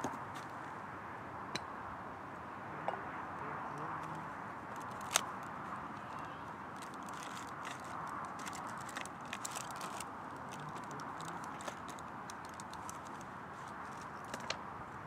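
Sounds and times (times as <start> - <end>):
distant motorway traffic hum: 0.0 - 15.0
wind: 0.0 - 15.0
clicks and rustles of handling: 4.0 - 5.5, 6.8 - 14.6.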